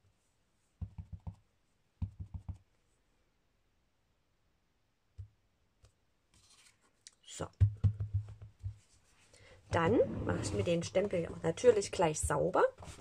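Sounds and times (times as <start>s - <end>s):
stamp block knocking on paper: 2.0s - 2.6s, 7.6s - 8.8s.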